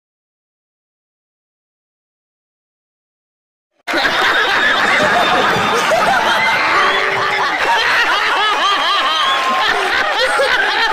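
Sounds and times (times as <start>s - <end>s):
crowd laughing loudly: 3.9s - 10.9s.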